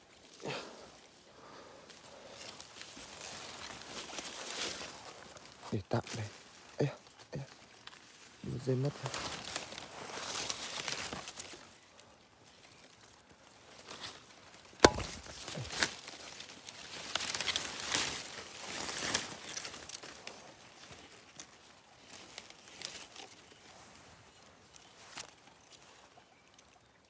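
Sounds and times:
leaves and twigs rustling: 0:00.0 - 0:27.0
sharp knock: 0:14.8 - 0:15.3.

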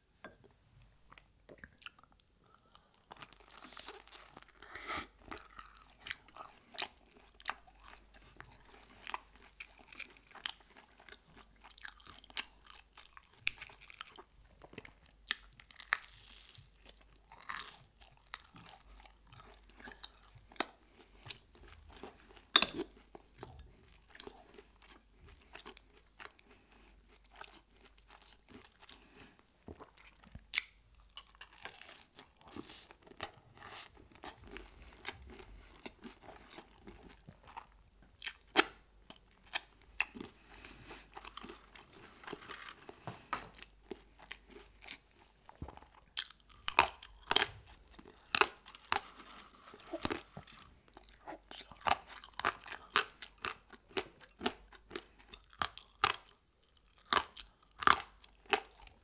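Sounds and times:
chewing crispy food: 0:01.1 - 0:59.0.

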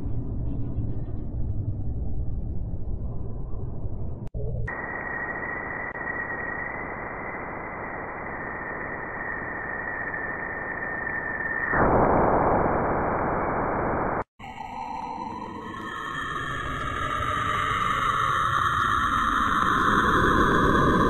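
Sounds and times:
steady high whistle: 0:04.7 - 0:12.3
static-like hiss: 0:04.7 - 0:14.2
eerie sound: 0:14.4 - 0:21.0.

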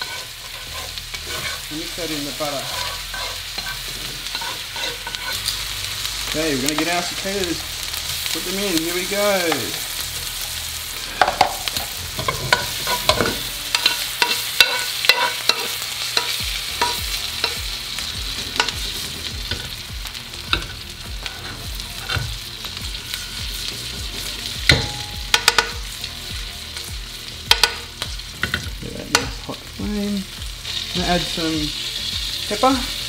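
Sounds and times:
insects frying in butter: 0:00.0 - 0:33.0
metal spoon tapping a pan: 0:02.7 - 0:05.4, 0:11.2 - 0:17.7, 0:18.6 - 0:18.9, 0:24.7 - 0:25.9, 0:27.5 - 0:29.4.

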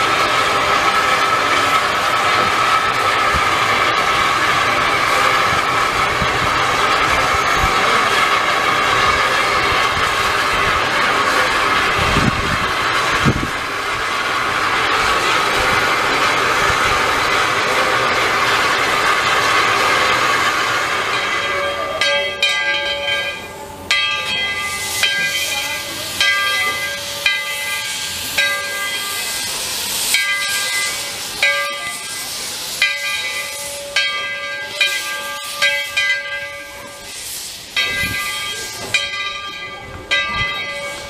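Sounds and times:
locomotive bell ringing: 0:00.0 - 0:41.0
steam hissing: 0:00.0 - 0:41.0.

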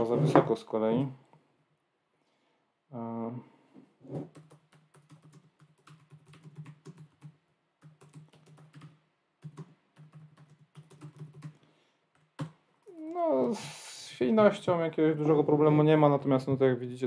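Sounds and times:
fast typing on laptop keyboard: 0:04.2 - 0:12.6.

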